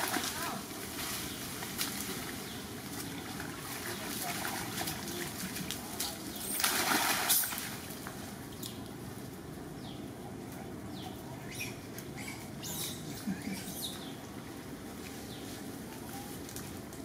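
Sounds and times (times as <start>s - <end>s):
splashing in shallow water: 0.0s - 8.1s.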